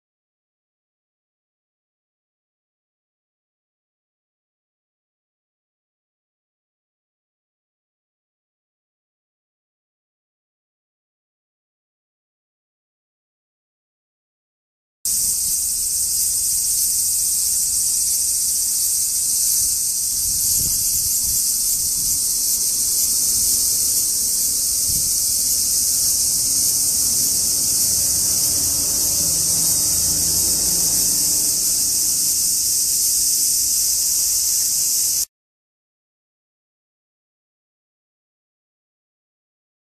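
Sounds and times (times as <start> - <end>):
cicada buzzing: 15.1 - 35.3.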